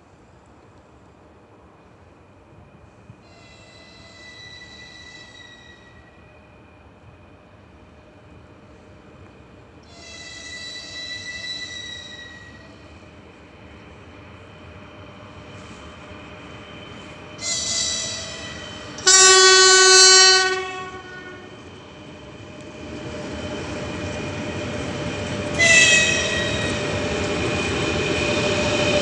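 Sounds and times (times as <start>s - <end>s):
locomotive horn blasts: 19.0s - 21.5s, 25.6s - 26.8s.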